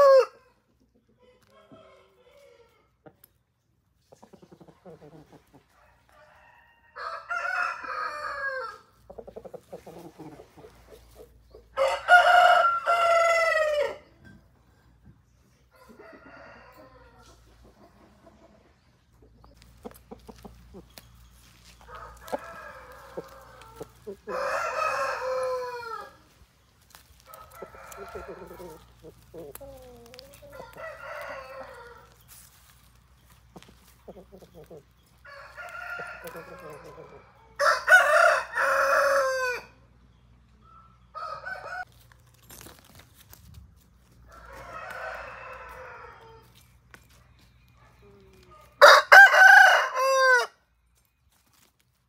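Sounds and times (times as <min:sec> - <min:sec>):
roosters crowing: 0:00.0 - 0:00.6, 0:05.7 - 0:09.2, 0:09.8 - 0:14.1, 0:15.7 - 0:17.5, 0:21.4 - 0:32.7, 0:34.3 - 0:39.9, 0:41.1 - 0:42.0, 0:44.0 - 0:46.6, 0:48.8 - 0:50.6
rooster clucks: 0:04.0 - 0:14.2, 0:15.6 - 0:26.4, 0:27.2 - 0:32.2, 0:33.2 - 0:39.7.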